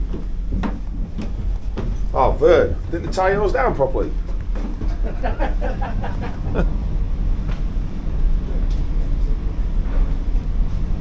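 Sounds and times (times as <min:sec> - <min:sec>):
ship engines rumbling: 0:00.0 - 0:11.0.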